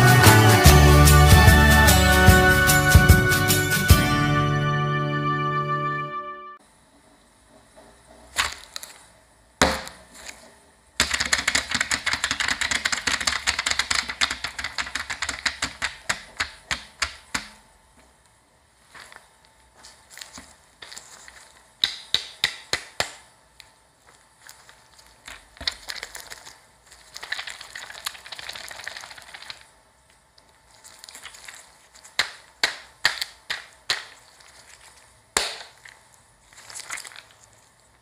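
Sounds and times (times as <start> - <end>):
crinkly plastic rustling: 8.3 - 9.1, 18.8 - 21.7, 24.0 - 38.0.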